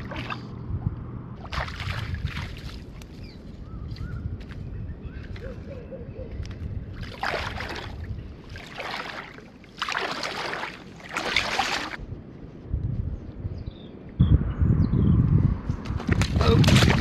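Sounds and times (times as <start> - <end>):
splashing steps in shallow water: 0.0 - 0.5, 1.4 - 3.2, 7.0 - 12.0, 16.0 - 17.0
light wind noise: 0.0 - 17.0.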